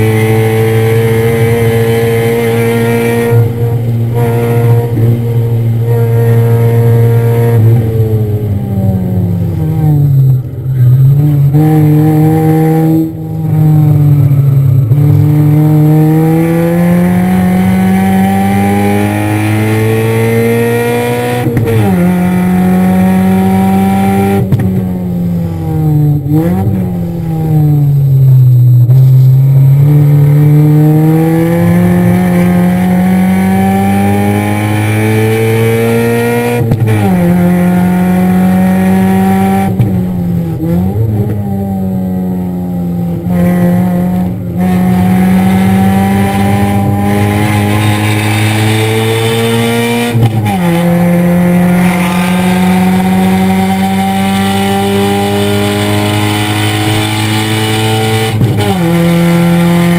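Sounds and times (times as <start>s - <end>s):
car engine revving: 0.0s - 59.9s
engine rev blips: 43.3s - 59.9s.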